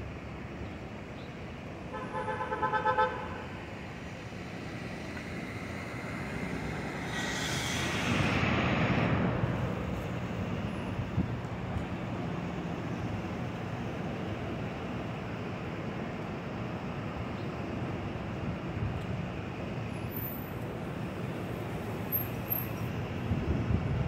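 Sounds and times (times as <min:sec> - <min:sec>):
train rumbling past: 0:03.4 - 0:14.9
high hiss: 0:06.5 - 0:09.9.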